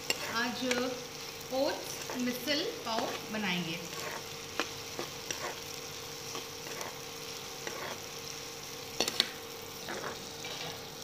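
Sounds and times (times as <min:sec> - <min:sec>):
ladle scraping a pan: 0:00.0 - 0:00.4, 0:03.9 - 0:04.3, 0:07.6 - 0:08.1, 0:09.0 - 0:10.8
onions sizzling in oil: 0:00.0 - 0:11.0.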